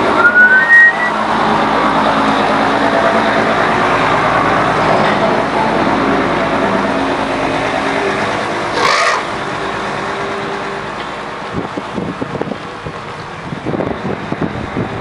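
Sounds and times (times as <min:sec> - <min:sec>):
brief high-pitched sound: 0:00.1 - 0:01.2
wind buffeting microphone: 0:11.5 - 0:15.0.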